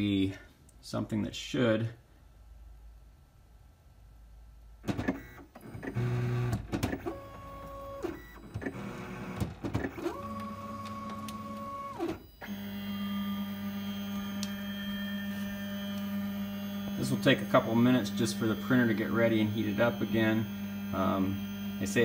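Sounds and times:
stepper motors whining: 7.0 - 22.0.

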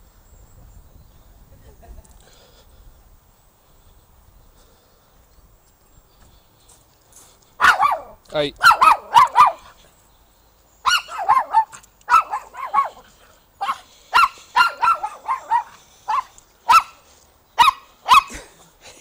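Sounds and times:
small dog yapping: 7.6 - 9.7, 10.8 - 17.0, 17.6 - 18.4.

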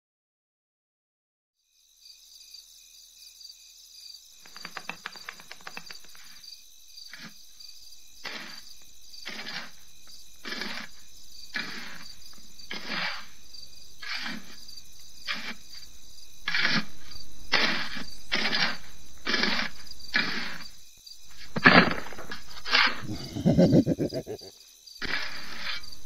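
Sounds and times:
crickets chirping: 1.6 - 26.0
rough scraping strokes: 8.2 - 9.8, 10.4 - 13.4, 14.0 - 14.6, 15.2 - 26.0.

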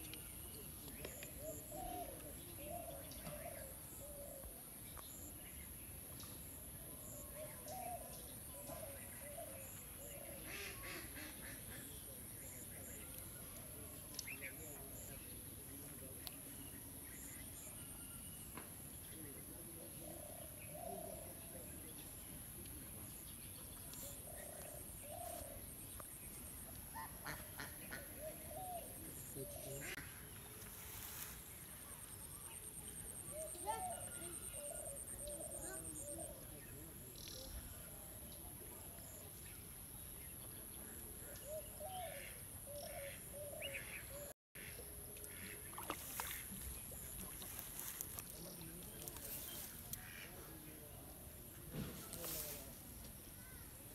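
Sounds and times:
bird calling: 23.9 - 30.1
rustles and water splashes: 45.1 - 50.4.

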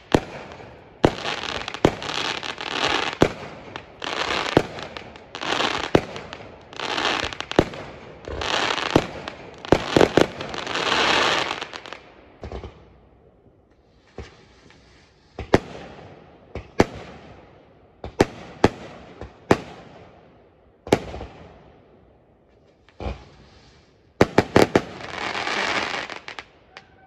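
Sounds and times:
fireworks crackling: 0.0 - 12.8, 22.6 - 26.6
fireworks bangs echoing: 0.0 - 13.0, 15.2 - 20.2, 20.8 - 21.7, 24.1 - 27.0.

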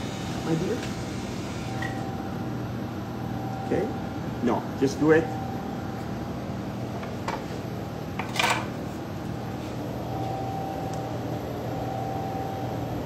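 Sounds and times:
appliance motor humming: 0.0 - 2.5
faint high whine: 0.0 - 6.2, 9.8 - 13.0.

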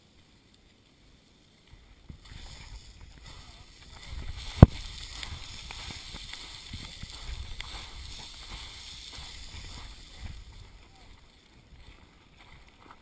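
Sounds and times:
small stones ticking: 1.7 - 11.6
footsteps crunching on loose rock: 1.7 - 13.0.

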